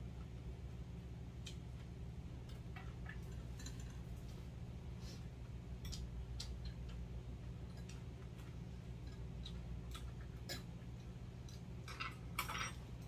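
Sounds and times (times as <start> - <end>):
steady low hum: 0.0 - 13.0
quiet chewing: 1.4 - 11.9
chopsticks clicking on metal bowls: 5.8 - 12.8.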